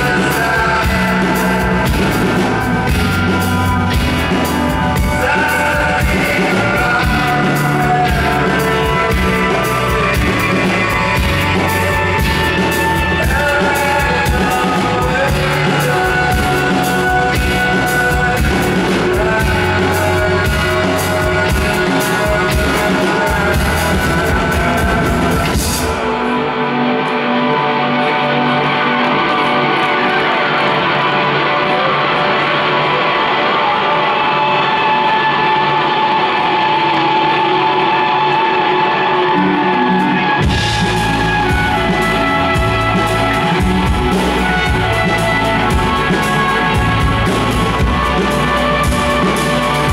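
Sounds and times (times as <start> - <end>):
drum and cymbal hits: 0.0 - 26.3, 40.1 - 49.9
person singing: 0.0 - 49.9.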